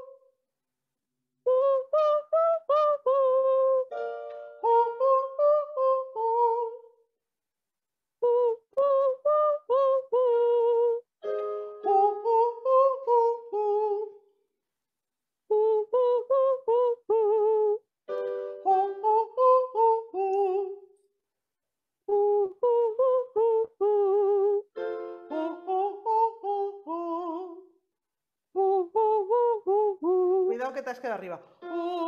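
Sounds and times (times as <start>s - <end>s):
woman singing vocal warm-up: 1.5s - 6.9s, 8.2s - 11.1s, 15.5s - 17.8s, 18.6s - 20.8s, 22.1s - 27.7s, 28.6s - 32.0s
digital piano notes: 11.2s - 12.4s.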